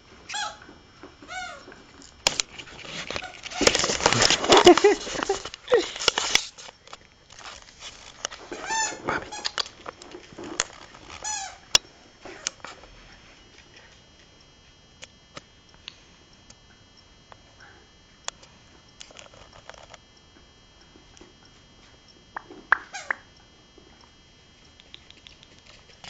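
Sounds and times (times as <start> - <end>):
puppies yelping: 1.3 - 1.6, 8.5 - 9.6
light pattering and clicks: 13.5 - 26.0.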